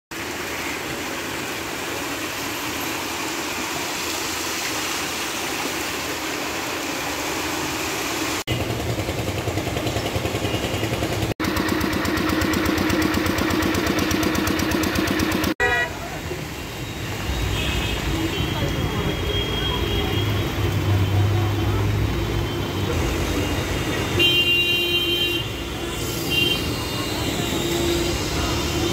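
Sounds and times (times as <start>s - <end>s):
heavy rain hissing: 0.2s - 8.5s, 15.9s - 28.9s
water pump engine running: 0.2s - 17.2s, 18.2s - 28.9s.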